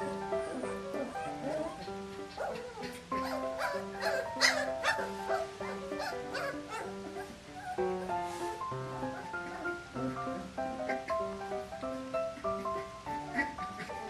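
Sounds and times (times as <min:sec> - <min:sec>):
puppies yipping and whimpering: 0:00.0 - 0:11.6, 0:12.2 - 0:14.0
instrumental background music: 0:00.0 - 0:14.0.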